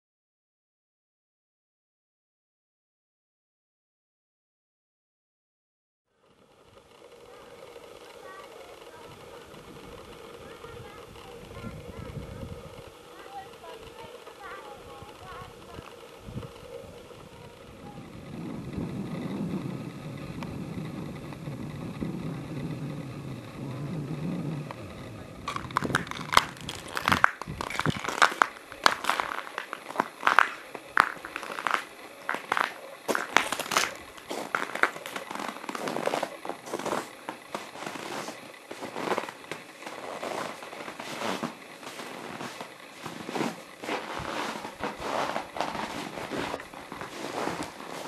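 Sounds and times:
low steady rumble: 6.2 - 48.0
crampons crunching on ice: 25.5 - 37.1.

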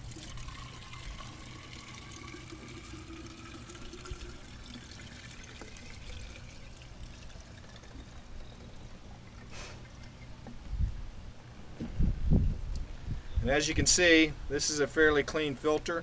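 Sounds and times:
fuel trickling into a jar: 0.0 - 10.6.

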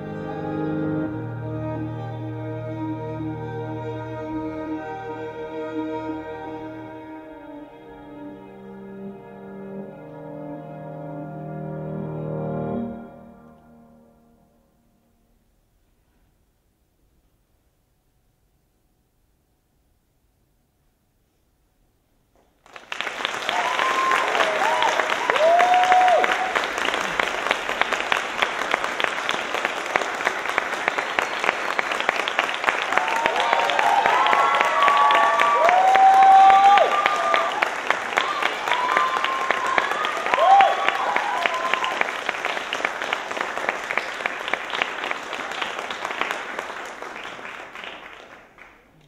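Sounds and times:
audience applauding: 22.6 - 49.0
crowd cheering whoop: 23.4 - 27.2, 32.8 - 42.3.

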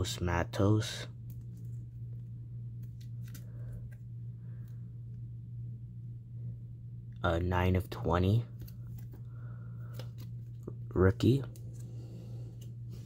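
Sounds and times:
steady low hum: 0.0 - 13.0
card in plastic sleeve rustling: 1.2 - 4.8.

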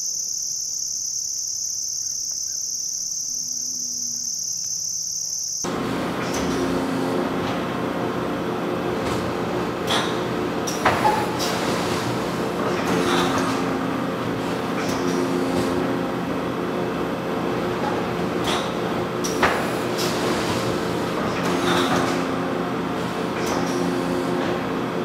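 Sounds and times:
food-processing machinery drone: 5.6 - 25.0.

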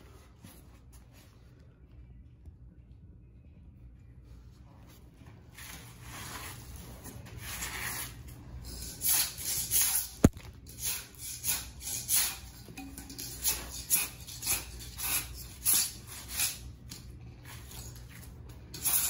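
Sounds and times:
metal scraper on concrete floor: 7.4 - 18.0, 18.7 - 19.0.

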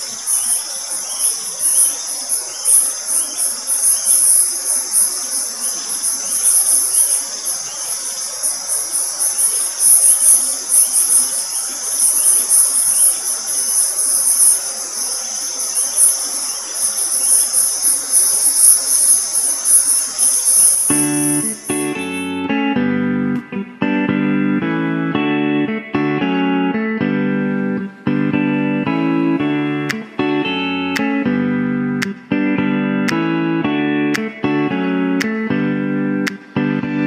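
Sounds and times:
insects chirring in shrill trill: 0.0 - 22.8
steady high insect hiss: 0.0 - 23.4.

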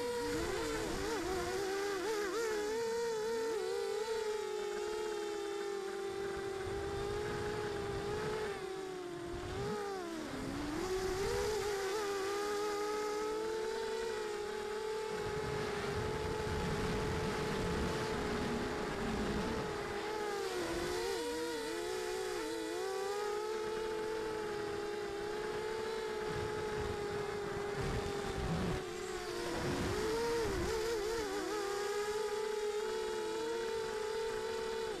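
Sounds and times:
drone motors whining: 0.0 - 35.0
wind rushing on microphone: 15.1 - 20.0, 26.0 - 30.9.

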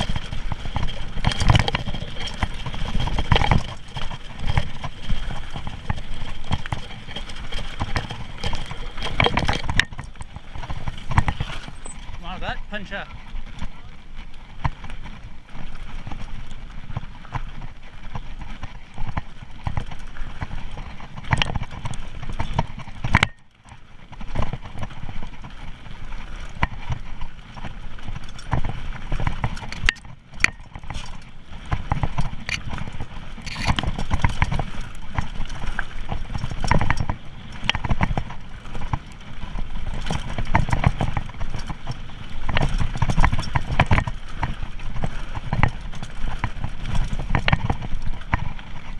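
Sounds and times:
bike clattering and rattling: 0.0 - 48.9
tyres crunching over gravel: 0.0 - 48.9.

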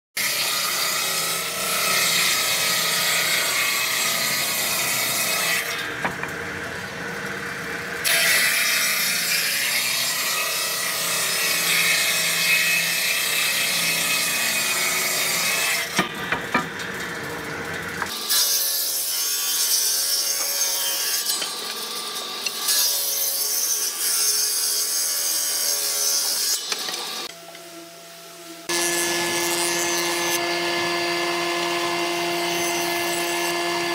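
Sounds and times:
table saw hum: 0.2 - 33.9
saw blade rasping through wood: 28.7 - 33.9.

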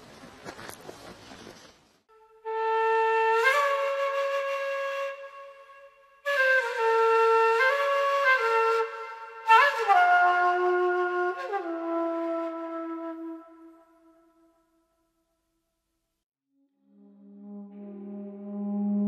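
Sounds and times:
slow flute melody: 2.1 - 14.9, 16.6 - 19.0.

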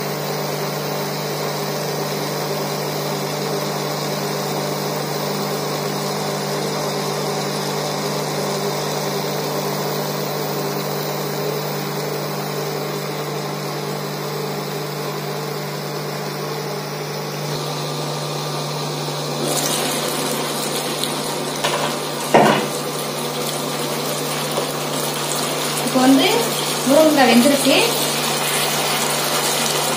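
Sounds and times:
cooktop hum: 0.0 - 29.9
sizzling: 19.3 - 29.9
water simmering in a pan: 19.4 - 29.9.

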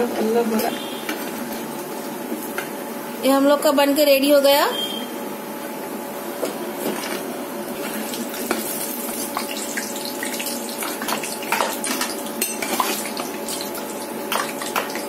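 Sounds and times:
patties sizzling in oil: 7.7 - 15.0.

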